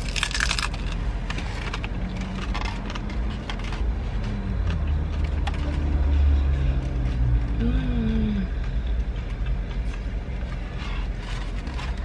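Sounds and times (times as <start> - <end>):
crunching bite into taco shell: 0.0 - 1.0
chewing with crunches: 0.0 - 7.6.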